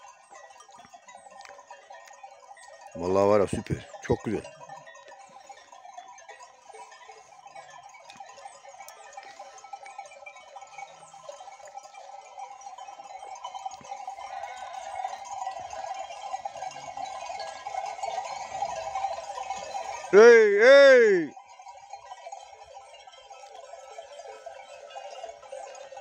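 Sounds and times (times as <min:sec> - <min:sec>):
sheep bells clinking: 0:00.0 - 0:26.0
sheep bleating: 0:20.1 - 0:21.3.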